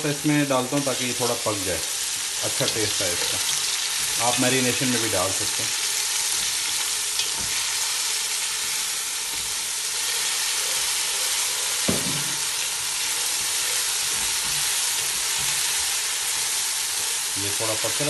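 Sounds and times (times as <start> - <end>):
onions sizzling in oil: 0.0 - 18.0.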